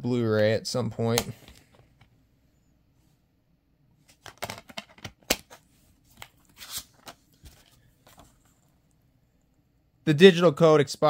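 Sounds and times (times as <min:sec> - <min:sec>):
plastic case clicks and rattles: 0:04.2 - 0:05.5.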